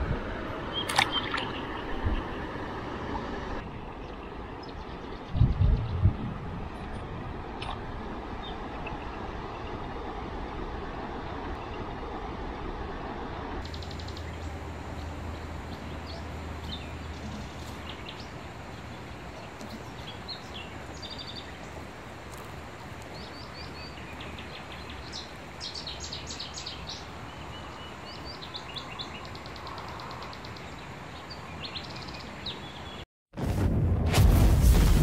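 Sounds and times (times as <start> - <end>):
outdoor background hiss: 6.2 - 33.0
small birds chirping: 13.6 - 33.0.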